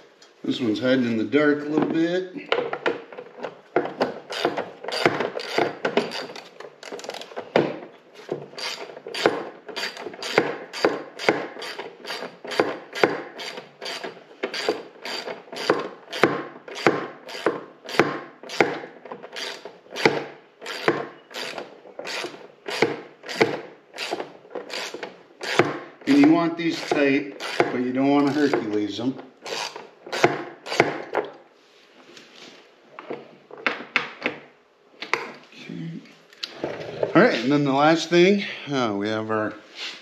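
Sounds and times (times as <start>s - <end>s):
ratchet wrench clicking: 8.6s - 18.0s, 19.4s - 19.6s, 20.6s - 23.4s, 26.8s - 27.6s.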